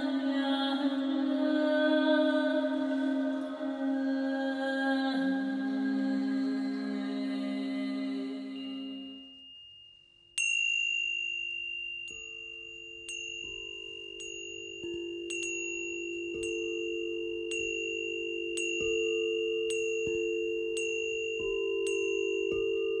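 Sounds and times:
metal chimes ringing: 8.4s - 23.0s.

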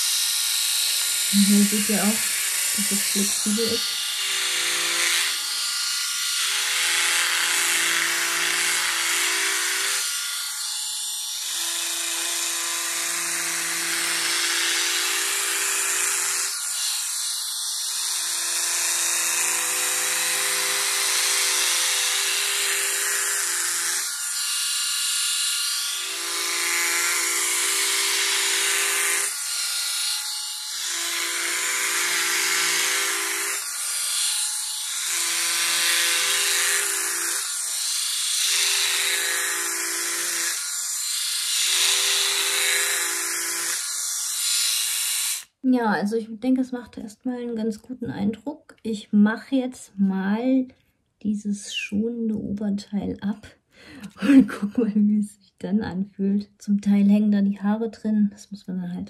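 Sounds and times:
epilator motor buzzing: 0.0s - 45.5s.

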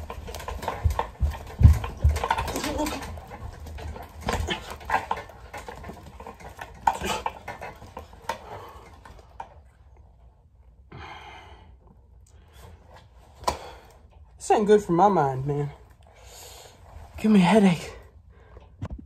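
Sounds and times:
speed bag being punched: 0.0s - 7.8s.

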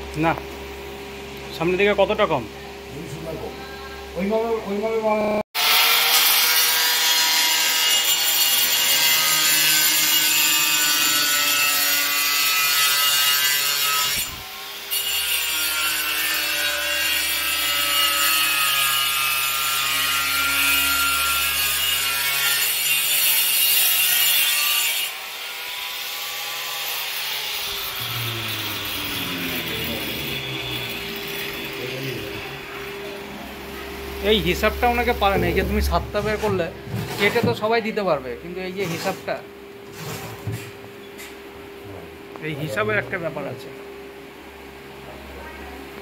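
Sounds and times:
angle grinder cutting: 5.6s - 37.5s, 38.5s - 40.2s.

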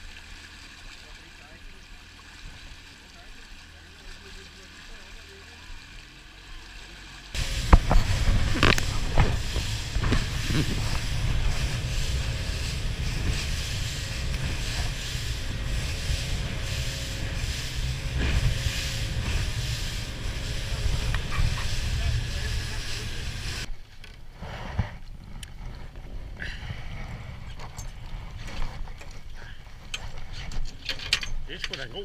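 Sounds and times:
wind and water rushing: 0.0s - 24.4s
hull slapping waves: 0.0s - 30.7s
boat engine rumble: 0.0s - 32.0s.

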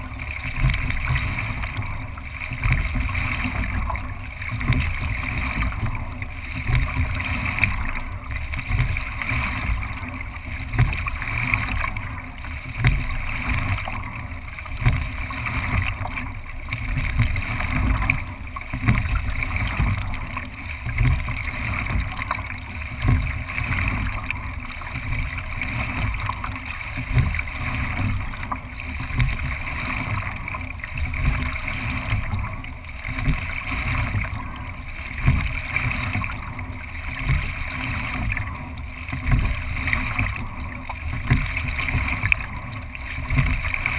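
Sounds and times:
water rushing along hull: 0.0s - 43.9s.

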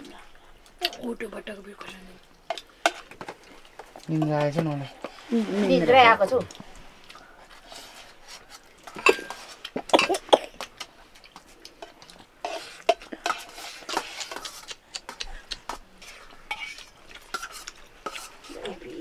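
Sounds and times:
utensils clinking on metal dishes: 8.9s - 10.3s, 16.5s - 18.8s.

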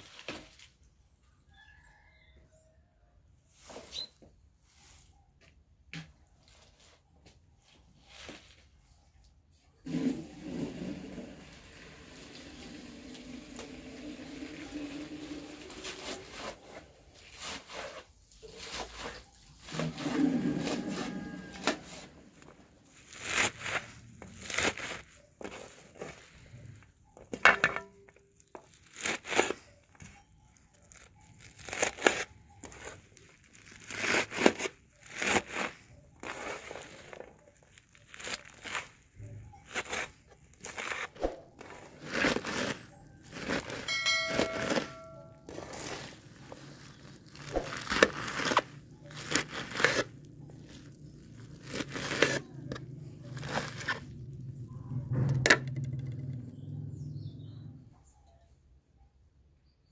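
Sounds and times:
hand gathering wet leaves: 9.9s - 26.5s, 30.9s - 54.2s
knife chopping spinach: 47.4s - 50.1s.

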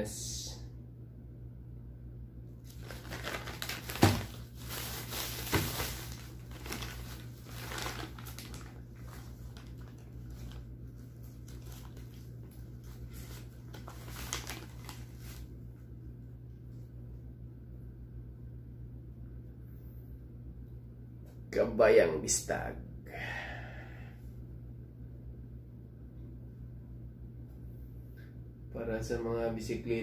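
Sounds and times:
plastic bags rustling: 2.6s - 15.5s.

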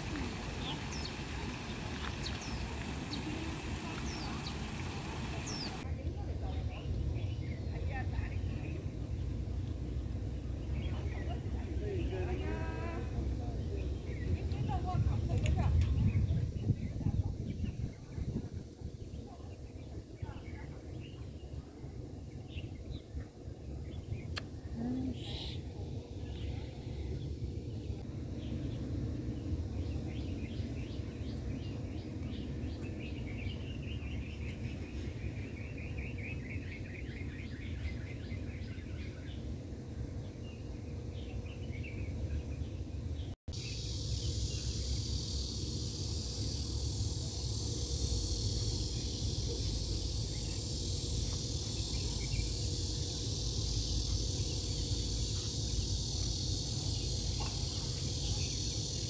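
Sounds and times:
insects chirping in trills: 0.0s - 5.8s, 43.5s - 59.0s
steady high hiss: 0.0s - 5.8s, 43.2s - 59.0s
steady low rumble: 0.0s - 59.0s.

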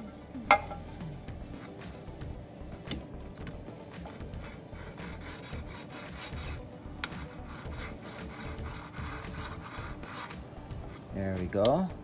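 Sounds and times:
file scraping metal: 4.0s - 11.1s.

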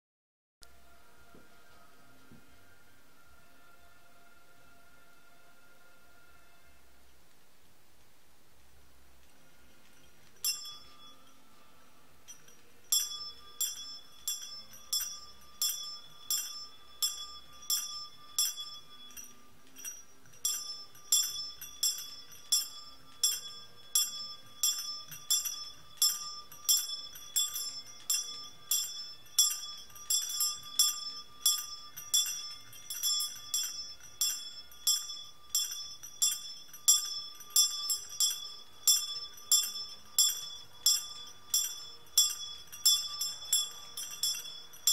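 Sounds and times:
small bell ringing: 9.6s - 44.9s.

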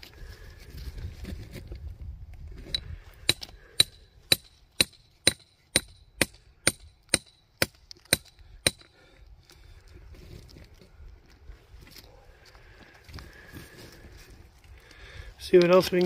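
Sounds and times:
hammer striking rock: 2.7s - 8.9s.

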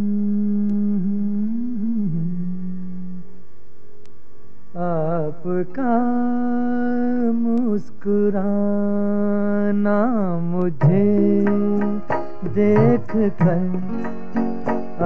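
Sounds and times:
film song with long held notes: 0.0s - 4.2s.

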